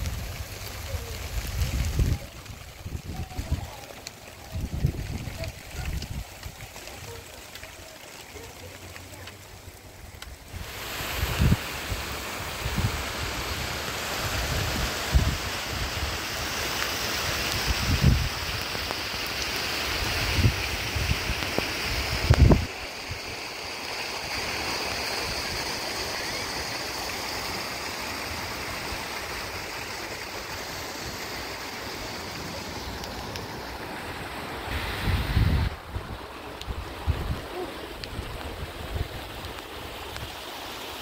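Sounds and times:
wind buffeting microphone: 0.0s - 7.2s, 10.5s - 13.6s, 14.2s - 16.2s, 17.5s - 18.6s, 20.1s - 23.2s, 32.6s - 40.0s
steady rain: 0.0s - 41.0s.

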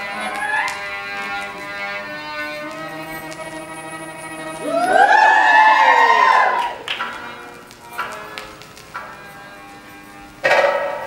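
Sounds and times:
audience whooping and cheering: 0.2s - 0.8s, 4.5s - 6.9s.

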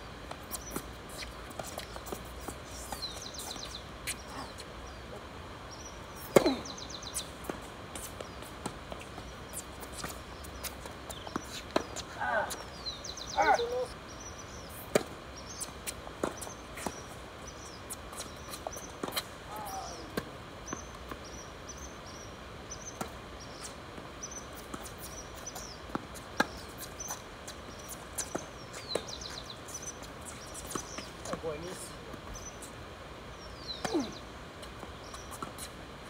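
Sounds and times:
tennis ball bouncing on court: 6.2s - 12.6s, 14.9s - 17.1s.

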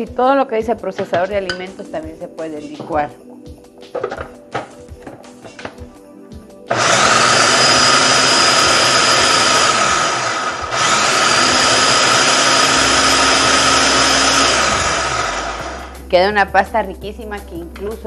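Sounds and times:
food processor motor running: 6.7s - 15.9s.

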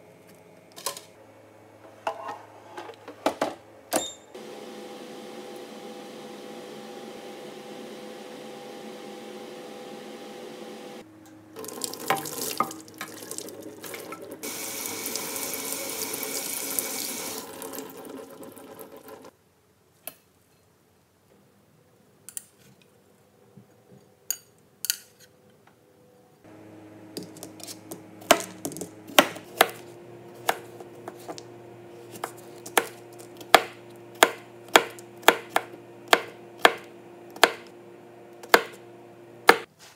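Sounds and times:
water tap running: 11.6s - 19.3s
knife chopping on plastic board: 27.2s - 31.4s, 32.1s - 37.7s, 38.4s - 38.8s, 39.4s - 39.7s.

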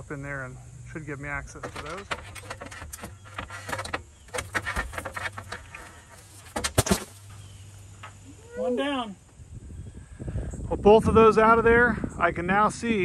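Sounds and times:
metal clicks and knocks: 1.5s - 7.1s.

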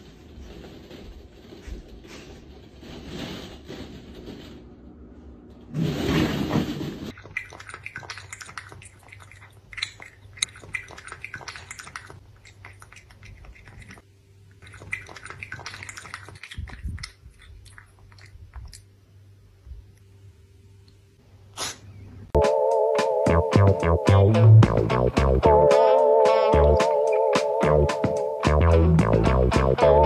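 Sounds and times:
cat lapping water: 7.1s - 19.0s.

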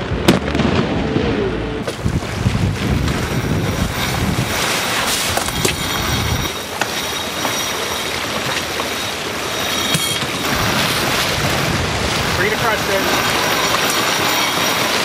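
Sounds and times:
wind buffeting microphone: 0.0s - 6.8s, 9.2s - 15.0s
water rushing along hull: 0.0s - 15.0s
firework bang with crackle: 0.1s - 4.3s.

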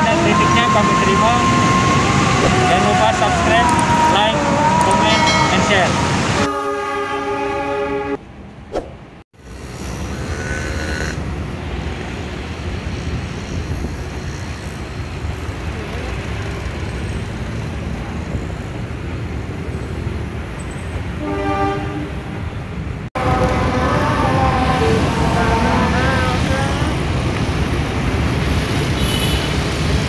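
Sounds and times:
train horn: 0.0s - 8.2s, 21.2s - 22.3s, 23.2s - 27.0s
street traffic: 0.0s - 30.0s.

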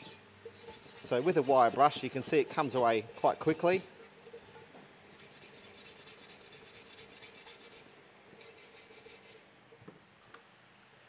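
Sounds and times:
wire brush scrubbing metal: 0.0s - 4.0s, 5.1s - 9.4s.

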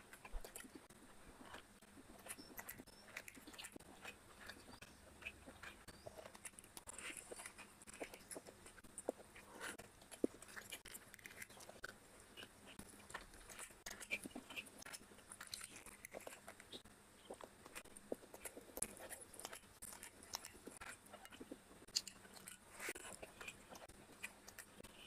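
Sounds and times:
chewing: 0.0s - 25.0s
fingers squishing rice: 0.0s - 25.0s.

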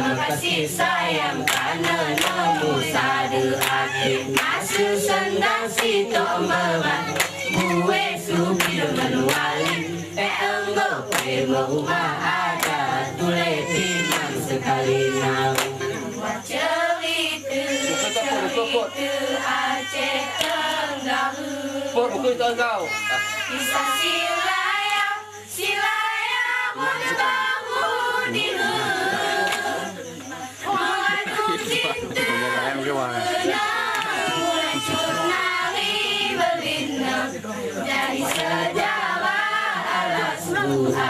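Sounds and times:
women singing in unison: 0.0s - 22.3s, 23.5s - 41.0s
hand claps and slaps: 1.5s - 2.4s, 3.6s - 3.8s, 4.4s - 4.6s, 5.8s - 6.0s, 7.2s - 7.8s, 8.6s - 9.8s, 11.1s - 11.4s, 12.6s - 12.9s, 14.0s - 14.3s, 15.5s - 15.9s, 20.4s - 20.6s, 29.4s - 29.7s, 33.9s - 34.2s, 38.3s - 38.5s.

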